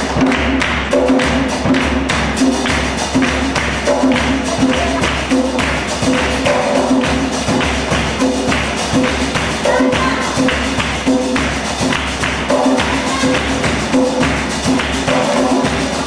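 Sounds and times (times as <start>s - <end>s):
hand drum beating: 0.0s - 16.0s
voices singing: 9.6s - 10.6s, 12.5s - 14.1s.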